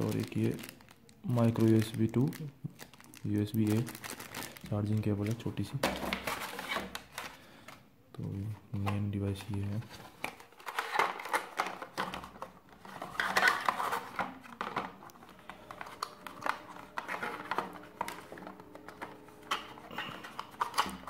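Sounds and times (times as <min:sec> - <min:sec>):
plastic tray rustling and clicking: 0:08.8 - 0:21.0.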